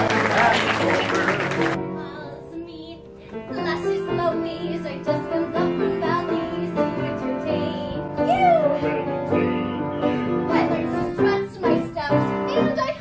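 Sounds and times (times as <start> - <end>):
instrumental accompaniment: 0.0 - 13.0
woman singing: 2.1 - 9.1, 10.4 - 13.0.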